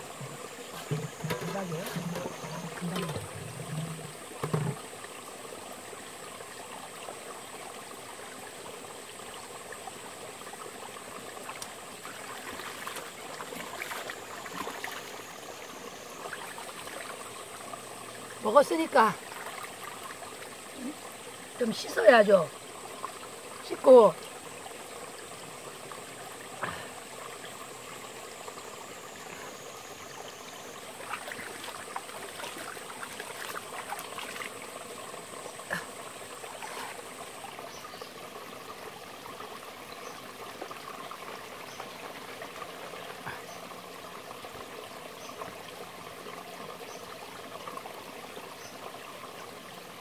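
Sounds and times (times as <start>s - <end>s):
stream trickling over rocks: 0.0s - 50.0s
faint ticks: 11.5s - 11.8s.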